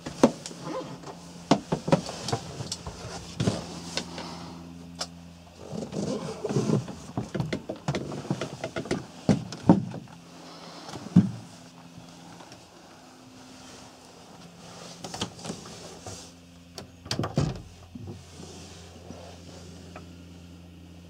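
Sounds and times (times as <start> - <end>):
steady low hum: 0.0 - 21.0
footsteps and handling knocks: 5.8 - 10.2.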